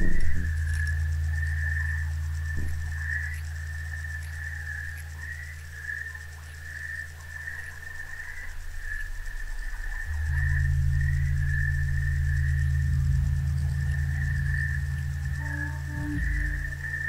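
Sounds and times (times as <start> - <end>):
high-pitched pulsing call: 0.0 - 5.0, 8.4 - 17.0
low hum: 0.0 - 17.0.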